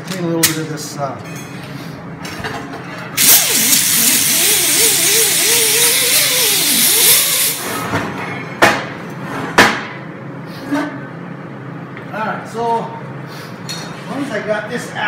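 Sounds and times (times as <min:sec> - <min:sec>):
air sander hissing on steel: 0:03.2 - 0:07.7.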